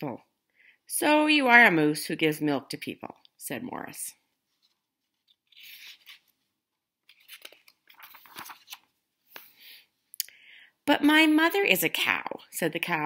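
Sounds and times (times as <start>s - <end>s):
paper page rustling: 4.4s - 9.5s.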